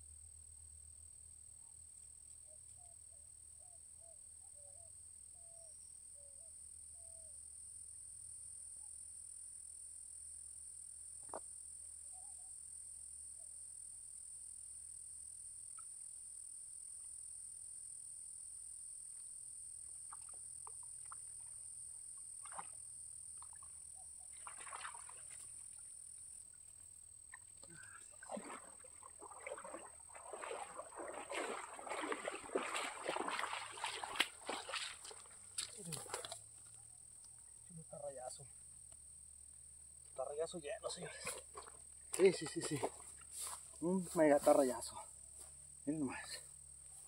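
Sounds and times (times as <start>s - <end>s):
water splashing and sloshing: 19.8s - 25.9s, 27.3s - 36.6s, 41.2s - 43.2s
faint clicks: 38.9s - 40.2s.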